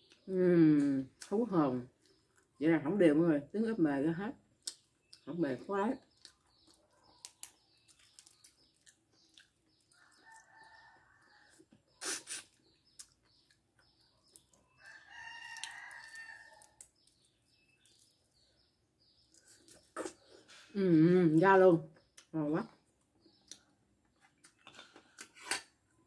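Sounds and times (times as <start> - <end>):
eating and egg peeling clicks: 7.1 - 8.5.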